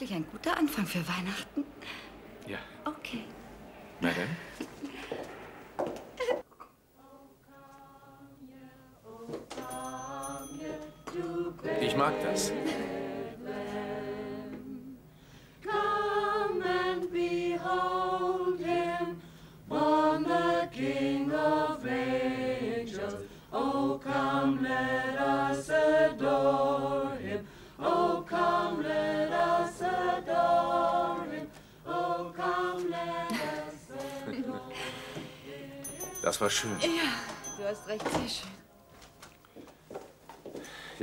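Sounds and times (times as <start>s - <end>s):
group singing a cappella: 6.9s - 36.8s.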